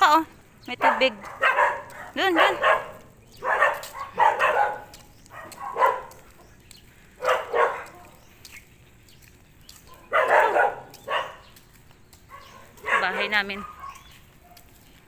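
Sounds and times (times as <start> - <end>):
dog barking: 0.7 - 6.3, 7.2 - 8.2, 9.9 - 11.6, 12.3 - 14.8.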